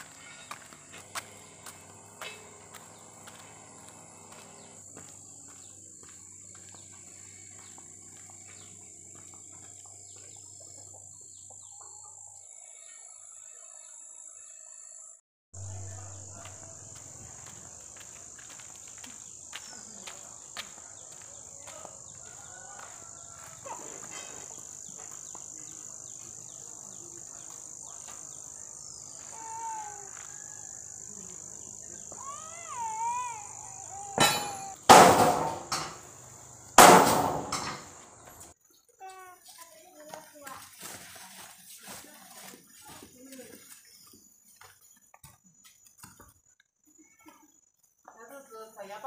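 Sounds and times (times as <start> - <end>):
insects buzzing high-pitched: 0.0 - 38.6
faint bird calls: 28.9 - 34.8.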